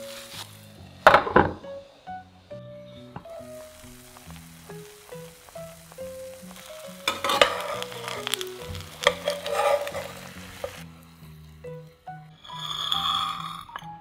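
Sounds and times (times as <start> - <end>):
food sizzling in oil: 0.0 - 1.7, 3.3 - 13.6
light plucked background music: 0.0 - 14.0
spatula scraping pan: 3.7 - 10.8, 12.4 - 13.8.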